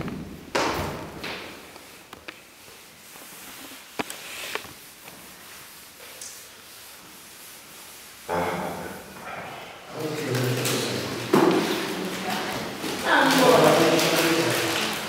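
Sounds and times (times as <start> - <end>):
eraser rubbing blackboard: 2.4 - 8.3.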